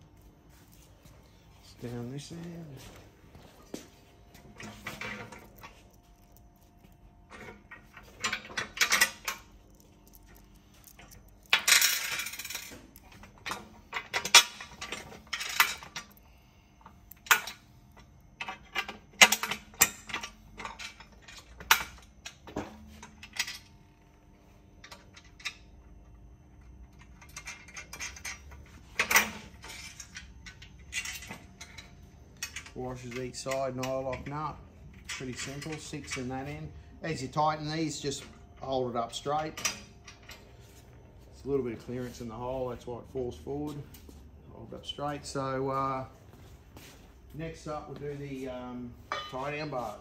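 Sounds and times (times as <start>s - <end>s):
metal bolts and nuts clinking: 4.5s - 16.2s, 27.0s - 38.3s, 49.1s - 50.0s.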